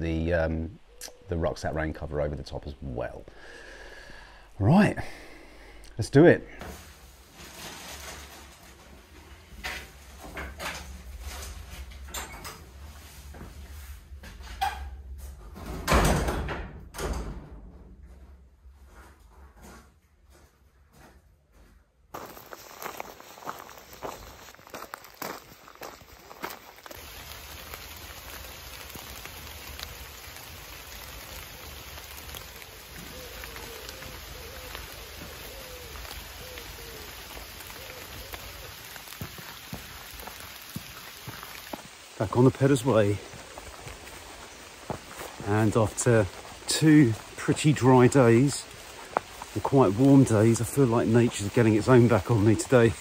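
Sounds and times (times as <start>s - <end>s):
rain on leaves and grass: 1.8s - 12.1s, 22.1s - 53.0s
footsteps on stone floor: 18.8s - 27.8s, 32.9s - 52.3s.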